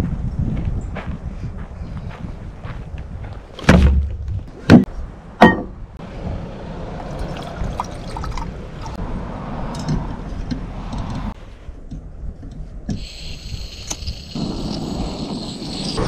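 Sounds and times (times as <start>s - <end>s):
water pouring into metal cup: 7.0s - 9.0s.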